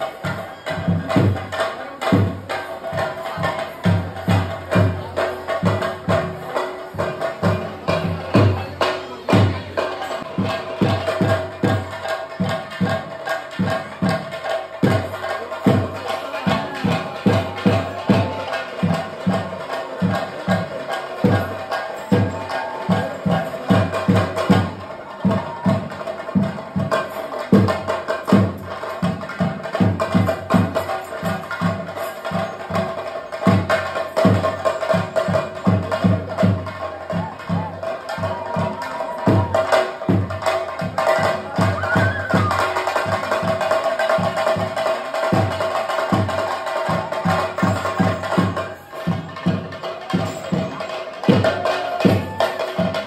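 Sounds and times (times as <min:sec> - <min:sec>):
drums beating fast rhythm: 0:00.0 - 0:53.0.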